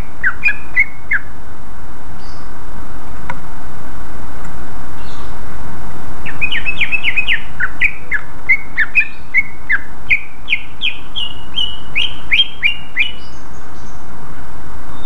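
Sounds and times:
bird whistling song: 0.0s - 1.3s, 5.0s - 5.3s, 6.2s - 14.0s
steady hiss: 0.0s - 15.0s.

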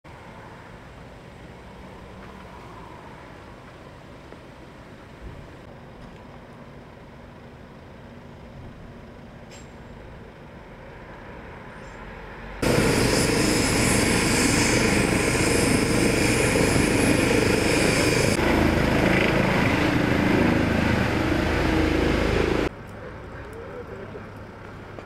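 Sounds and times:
helicopter rotor noise: 12.6s - 22.7s
helicopter turbine whine: 12.6s - 22.7s.

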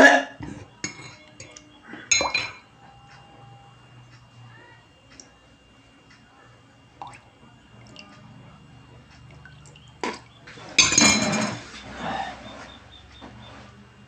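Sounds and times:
liquid dripping into a mug: 7.0s - 8.2s, 9.2s - 10.3s.

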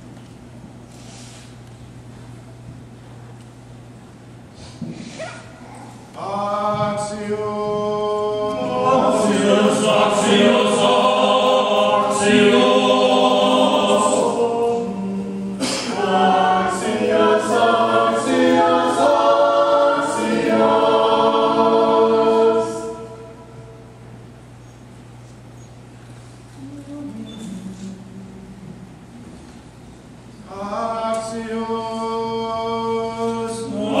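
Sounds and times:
choir chanting a cappella: 6.2s - 23.8s, 30.4s - 34.0s.

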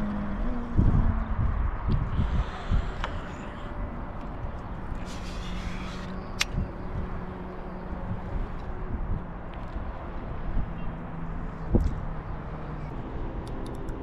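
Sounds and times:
sharp clicks: 6.3s - 6.6s, 13.4s - 14.0s.

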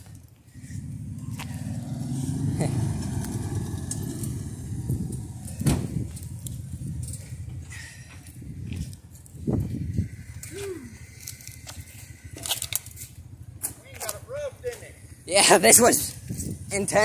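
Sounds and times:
vehicle driving past: 0.5s - 8.9s.

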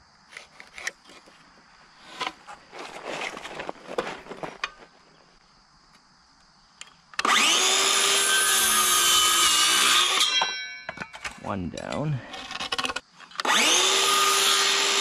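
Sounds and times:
circular saw cutting wood: 7.2s - 10.6s, 12.3s - 15.0s.

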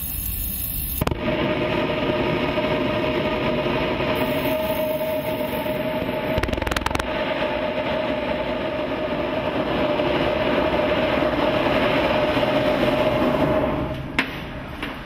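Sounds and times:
burner clicks: 0.0s - 1.4s, 3.7s - 7.3s
gas burner flame roaring: 0.0s - 14.9s.

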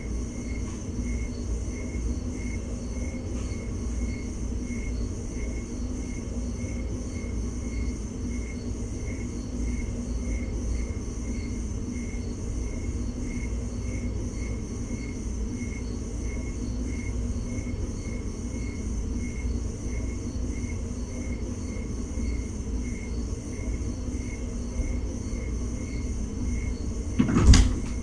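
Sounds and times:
low room hum: 0.0s - 28.0s
sudden knocks: 27.2s - 28.0s.

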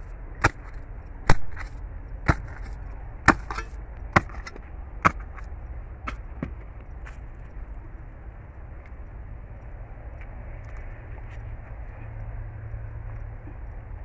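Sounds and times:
tool chopping into plant root: 0.4s - 5.5s.

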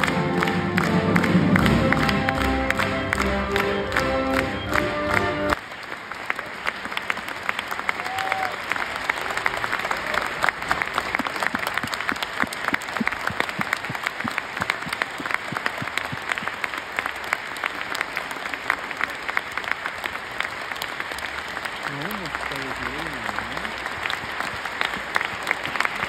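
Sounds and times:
audience applauding: 0.0s - 26.0s
sharp claps close by: 10.7s - 17.7s.

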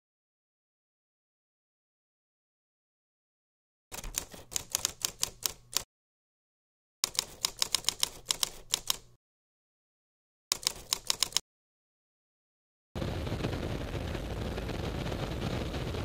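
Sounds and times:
typewriter keys clacking: 3.9s - 5.9s, 7.0s - 9.2s, 10.5s - 11.4s.

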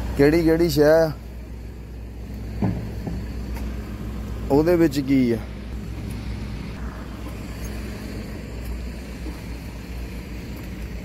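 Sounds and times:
low rumble of motor vehicles: 0.0s - 11.0s.

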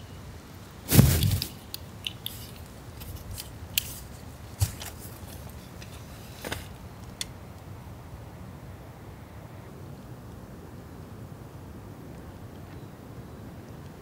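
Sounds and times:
tarp rustling: 0.8s - 1.6s.

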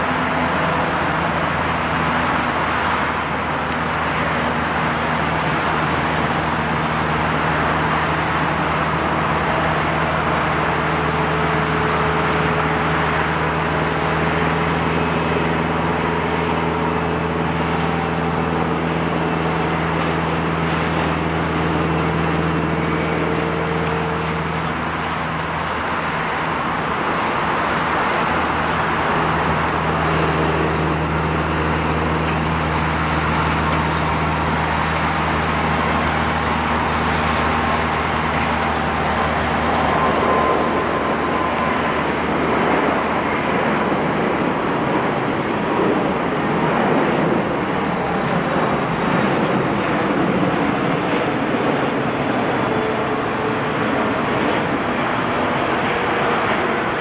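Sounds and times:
jet engines rumbling: 0.0s - 57.0s.

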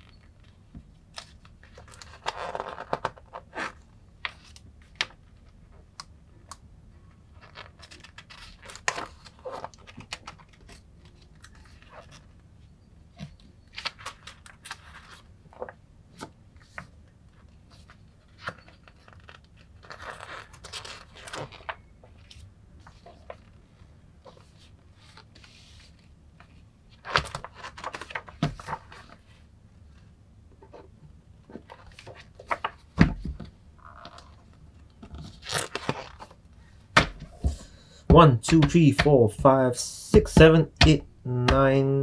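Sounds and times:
paper pages rustling: 17.7s - 23.6s, 24.2s - 29.4s, 35.1s - 36.4s.

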